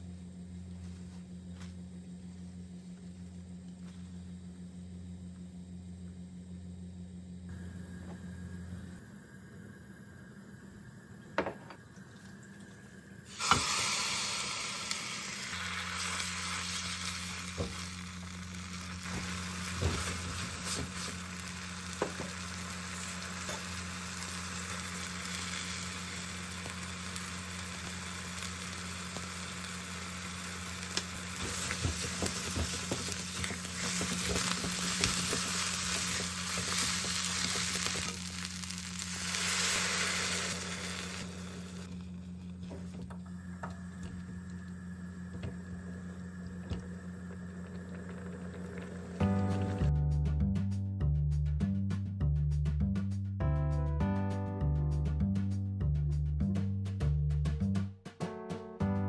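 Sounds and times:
broth hissing in hot pot: 7.5s - 49.9s
seaweed sizzling in hot oil: 13.3s - 42.4s.

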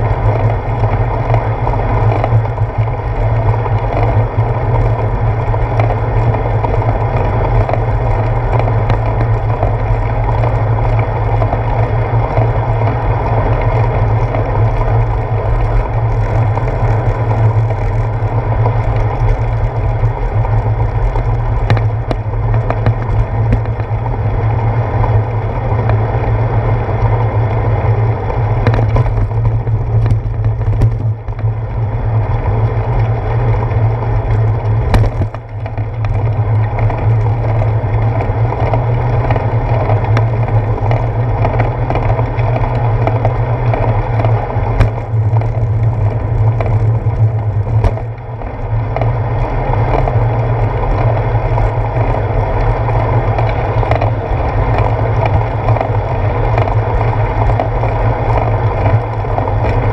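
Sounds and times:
bicycle tyres on wet pavement: 0.0s - 59.9s
wind noise: 0.0s - 59.9s
knocks from bumps: 34.8s - 35.4s, 47.7s - 48.1s.

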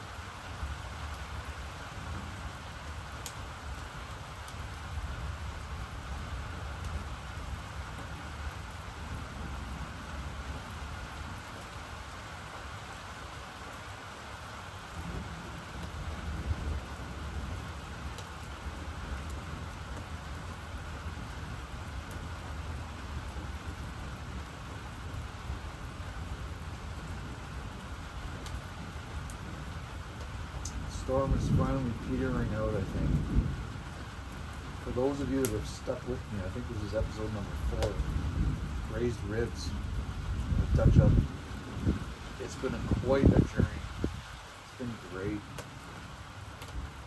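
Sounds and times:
steady rain falling: 0.0s - 47.0s
rolling thunder: 14.9s - 20.6s, 30.8s - 44.4s.

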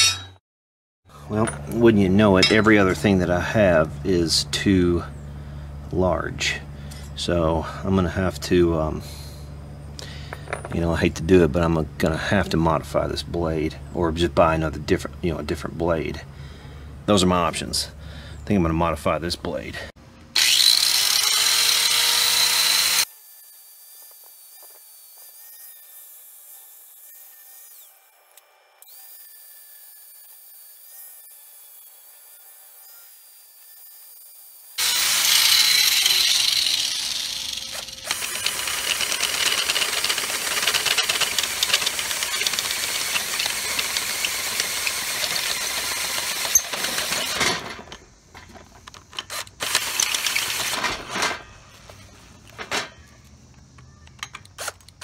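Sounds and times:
angle grinder running: 20.4s - 23.1s, 34.8s - 48.0s, 49.2s - 51.2s
cordless drill boring into steel: 20.4s - 23.1s, 34.8s - 47.6s, 49.2s - 50.8s.

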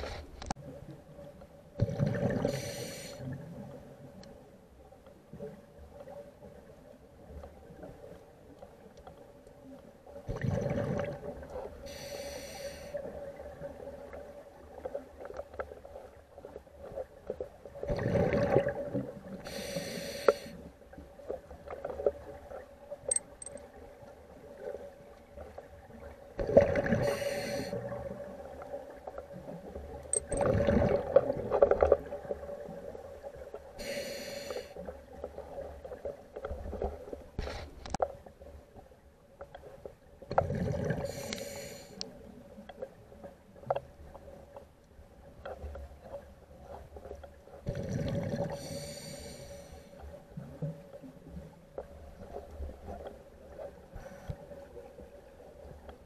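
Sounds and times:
rushing breath-like noise: 11.9s - 13.0s.

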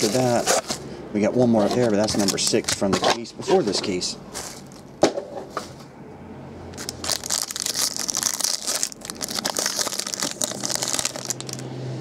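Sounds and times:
foil wrapper crinkling and tearing: 0.0s - 0.6s, 6.8s - 11.7s.

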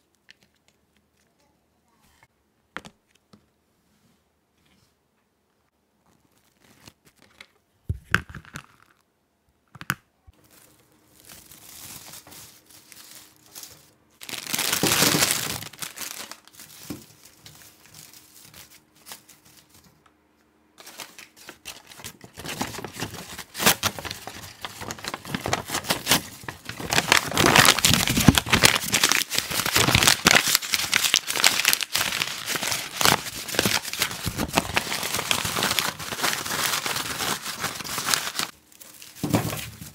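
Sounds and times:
packaging crinkling and rustling: 10.4s - 20.0s, 20.8s - 39.9s.

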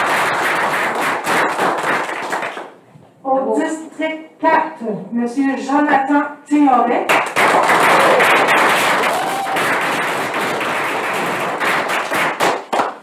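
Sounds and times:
audience applauding: 0.0s - 2.7s, 7.1s - 13.0s.

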